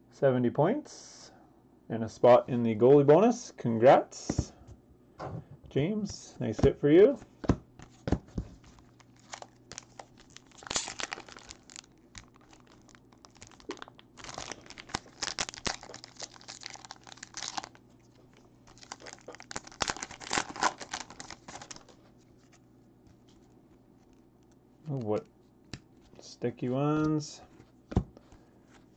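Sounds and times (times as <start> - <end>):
foil wrapper tearing and crumpling: 8.8 - 17.8, 18.7 - 21.9.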